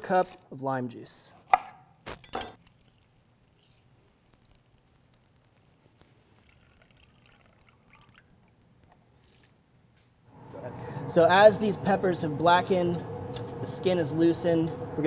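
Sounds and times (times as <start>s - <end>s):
knife chopping on wooden board: 1.5s - 1.8s
juice trickling into metal cup: 2.6s - 9.6s.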